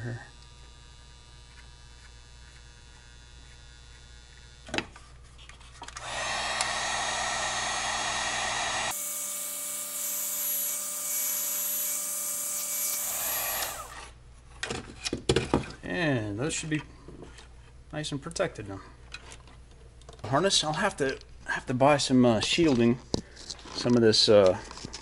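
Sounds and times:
heat gun fan blowing: 0:05.9 - 0:14.2.

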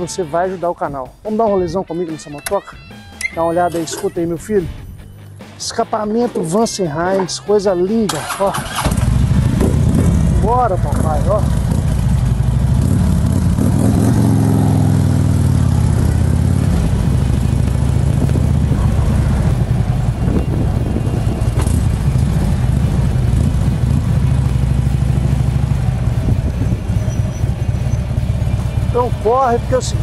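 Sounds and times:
motorcycle engine exhaust note: 0:08.8 - 0:30.0.

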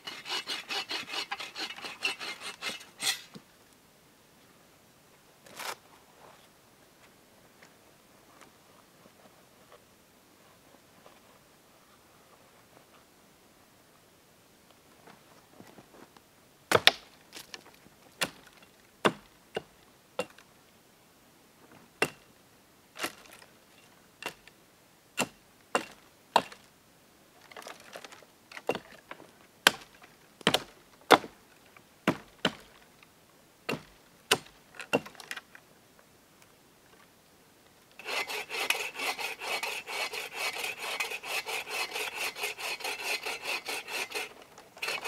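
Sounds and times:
hatchet chopping dry wood: 0:16.7 - 0:17.1, 0:18.2 - 0:18.4, 0:19.0 - 0:20.4, 0:22.0 - 0:22.2, 0:25.2 - 0:26.6, 0:29.7 - 0:31.3, 0:32.1 - 0:32.6, 0:33.7 - 0:35.2.

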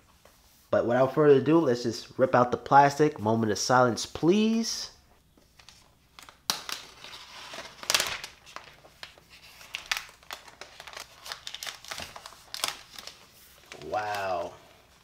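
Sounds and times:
plastic film crinkling: 0:05.4 - 0:15.0.

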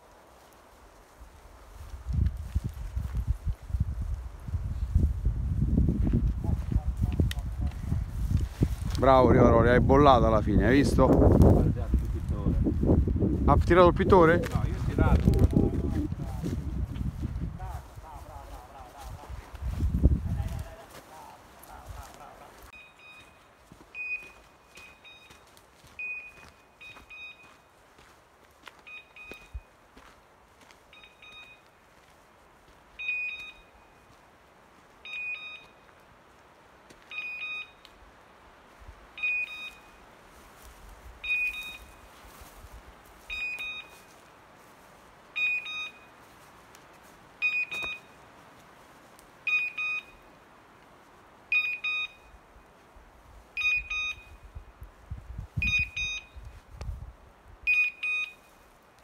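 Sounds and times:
short high electronic beeps: 0:39.2 - 0:40.0, 0:41.2 - 0:42.0, 0:43.3 - 0:44.0, 0:45.4 - 0:46.1, 0:49.5 - 0:50.2, 0:51.5 - 0:52.3, 0:53.6 - 0:54.4, 0:55.6 - 0:56.4, 0:57.7 - 0:58.5.

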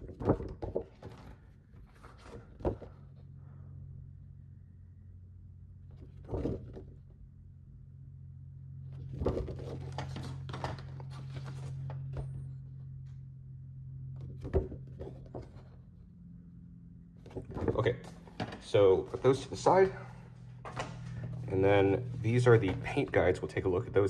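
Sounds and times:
paper rustling: 0:00.0 - 0:03.1, 0:09.0 - 0:12.6, 0:14.2 - 0:15.8, 0:17.2 - 0:19.7, 0:20.6 - 0:23.4
steady low hum: 0:00.0 - 0:24.0.

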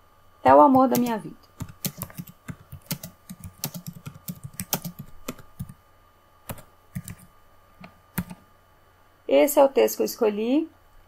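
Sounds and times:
computer keyboard typing: 0:00.5 - 0:05.8, 0:06.5 - 0:07.3, 0:08.1 - 0:08.4.

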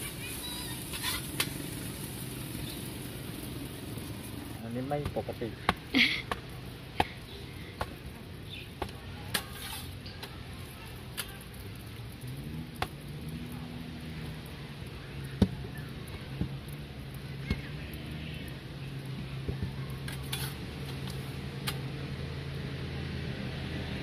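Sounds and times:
dough slapping on metal counter: 0:04.8 - 0:07.2, 0:08.8 - 0:11.7.

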